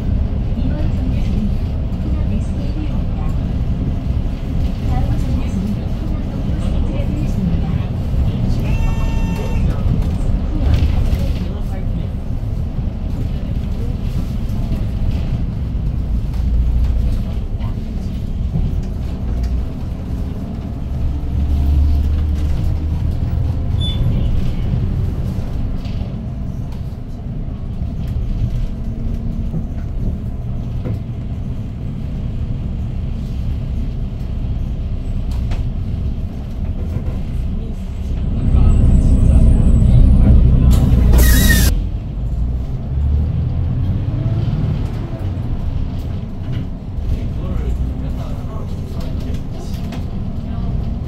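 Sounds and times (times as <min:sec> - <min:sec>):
bus engine running: 0:00.0 - 0:51.0
air brake hiss: 0:41.2 - 0:41.7.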